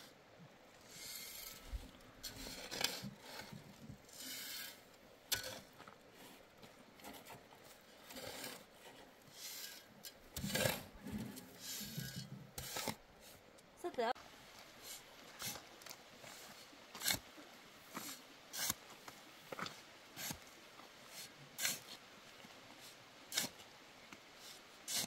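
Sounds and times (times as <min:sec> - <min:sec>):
scraping against hard surface: 0:00.8 - 0:06.4, 0:07.0 - 0:13.4.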